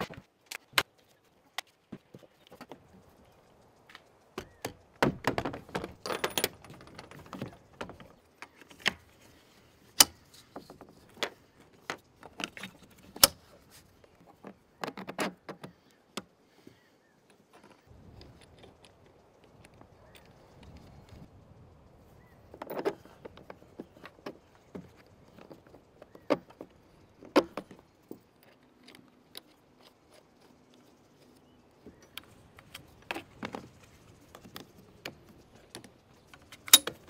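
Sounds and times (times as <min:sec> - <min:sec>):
hardware rattling: 0:04.4 - 0:09.1.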